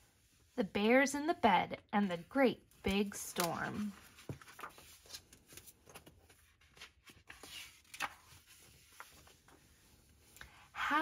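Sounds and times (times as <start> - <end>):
book pages turning: 2.8 - 10.6
page flapping: 3.0 - 9.4.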